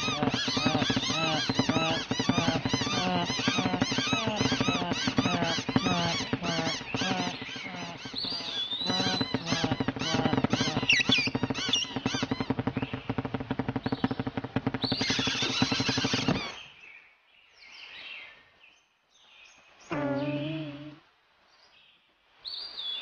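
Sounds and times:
cartoon birds squawking: 0.0s - 12.8s, 14.9s - 16.6s
steady low hum: 0.0s - 16.4s.

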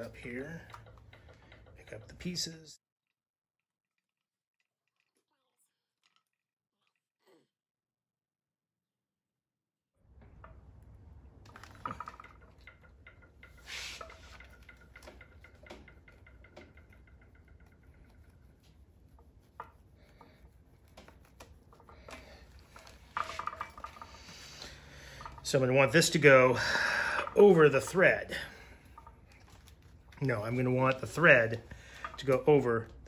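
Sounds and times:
small clicks and taps: 0.0s - 2.4s, 10.2s - 26.1s.

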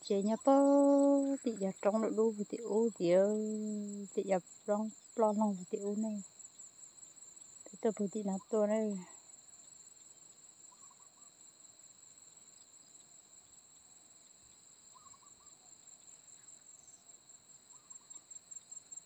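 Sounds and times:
soft rhythmic pulsing: 0.0s - 11.1s
insects trilling: 0.0s - 19.0s
short faint calls: 14.9s - 15.7s.

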